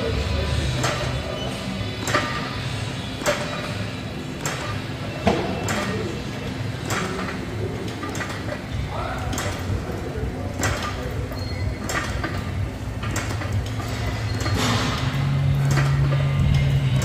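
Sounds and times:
exercise machine knocking and clanking: 0.0s - 17.0s.

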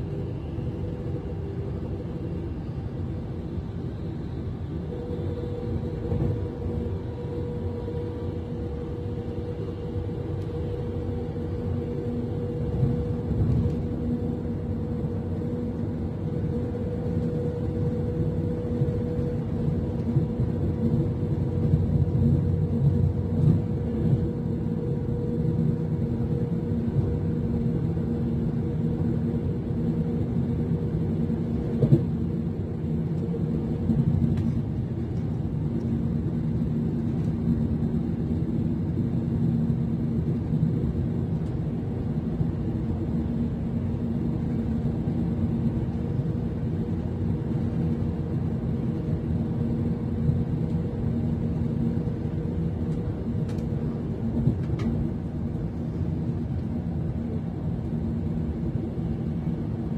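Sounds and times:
constant hum: 0.0s - 59.9s
train cabin rumble: 31.4s - 37.3s, 51.6s - 56.9s.

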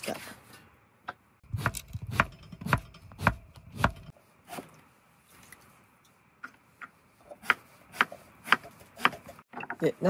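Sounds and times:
knife chopping on cutting board: 7.4s - 9.3s.

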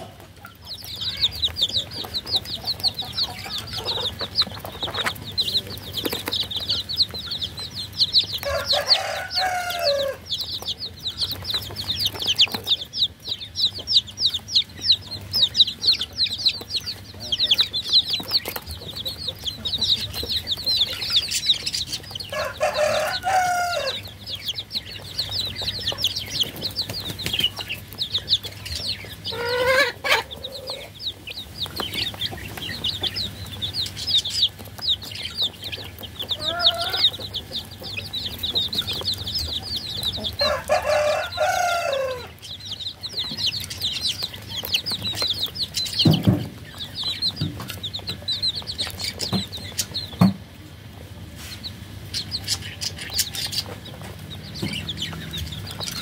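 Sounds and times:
baby chicks peeping: 0.0s - 56.0s
chicken call: 36.4s - 37.2s.

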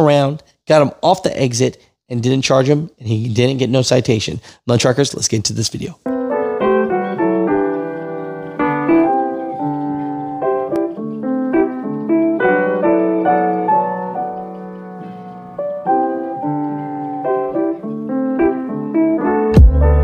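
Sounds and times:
piano notes and chords: 6.0s - 20.0s.

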